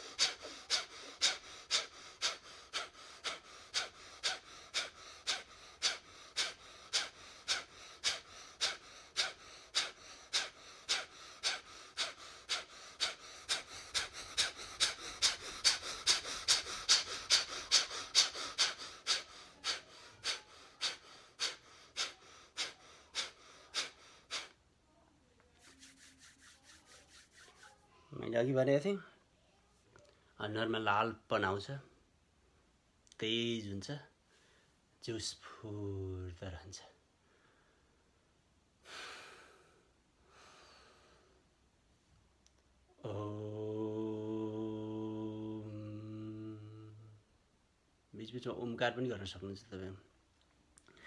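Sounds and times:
forceful rhythmic breaths: 0:00.0 - 0:24.6.

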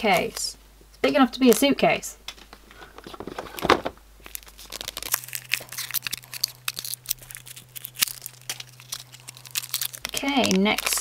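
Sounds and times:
foil wrapper crinkling and tearing: 0:03.5 - 0:11.0.

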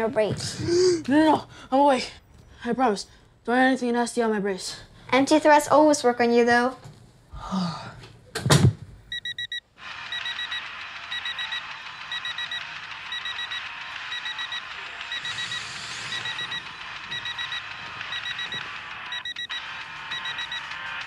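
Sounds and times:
door shutting with a thud: 0:08.4 - 0:08.8
alarm clock beeping: 0:09.1 - 0:21.0.

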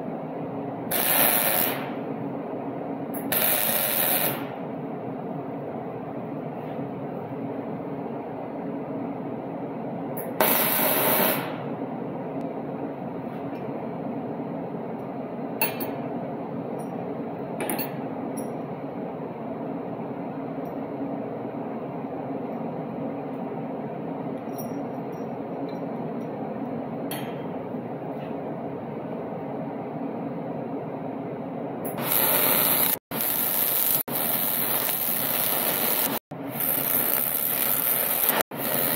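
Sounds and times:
workshop hum: 0:00.0 - 0:38.9
light metal clinks: 0:24.4 - 0:25.9.

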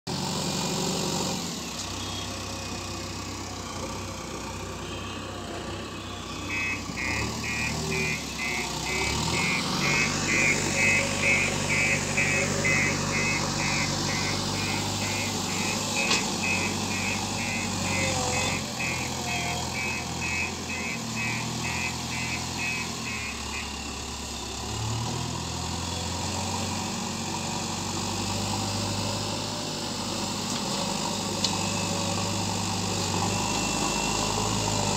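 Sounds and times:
diesel engine running: 0:00.1 - 0:34.9
high-pitched beeper: 0:06.1 - 0:23.8.

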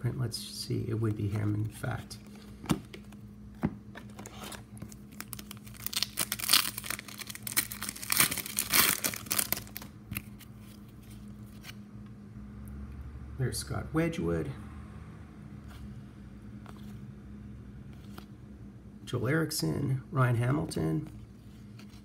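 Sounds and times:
wrapper tearing and crinkling: 0:04.2 - 0:10.3.

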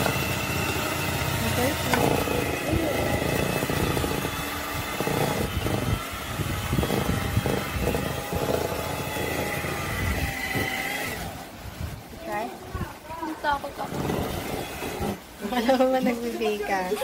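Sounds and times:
electric hand mixer whine: 0:00.0 - 0:11.8, 0:13.8 - 0:15.4.

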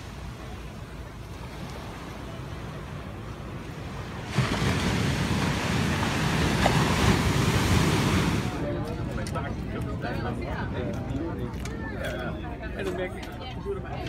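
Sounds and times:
waves washing on a beach: 0:00.0 - 0:10.8.

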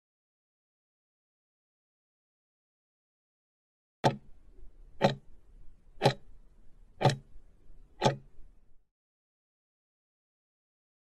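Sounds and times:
clock ticks: 0:04.0 - 0:04.4, 0:05.0 - 0:05.3, 0:06.0 - 0:06.3, 0:07.0 - 0:07.4, 0:08.0 - 0:08.4.

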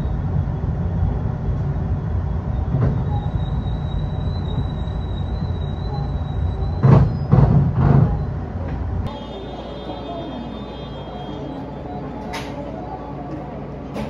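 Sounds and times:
train low rumble: 0:00.0 - 0:14.0
thin high whine: 0:09.1 - 0:14.0.

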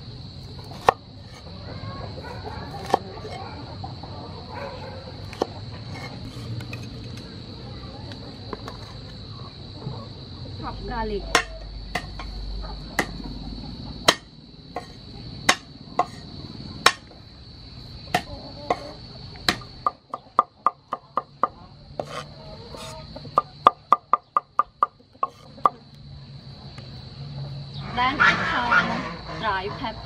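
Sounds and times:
cleaver chopping on wooden board: 0:02.7 - 0:03.0, 0:11.4 - 0:12.2, 0:14.1 - 0:16.2, 0:16.8 - 0:17.0, 0:18.1 - 0:18.9.

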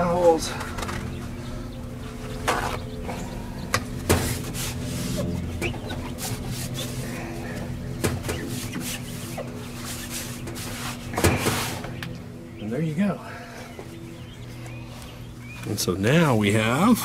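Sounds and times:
steady low hum: 0:00.0 - 0:17.0
paper towels rubbing glass: 0:04.2 - 0:07.2, 0:08.3 - 0:11.9.

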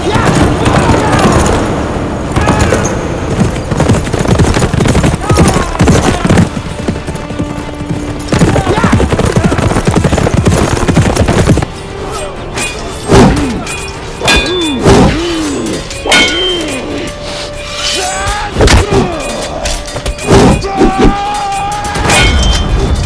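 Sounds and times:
horse hooves galloping: 0:02.4 - 0:11.8
dramatic orchestral music: 0:05.1 - 0:23.0
swords clashing: 0:12.1 - 0:23.0
men shouting: 0:17.8 - 0:22.4.

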